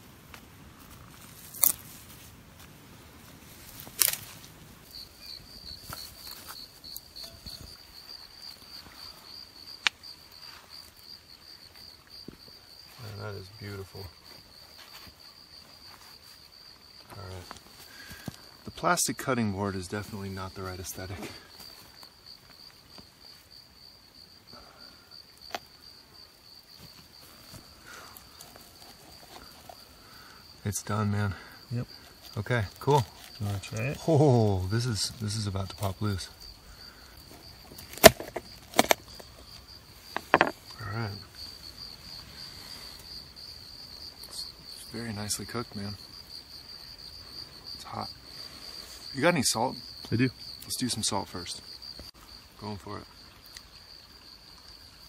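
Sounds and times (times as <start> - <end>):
insect trilling: 3.0 - 55.0
faint knocks: 40.1 - 40.6.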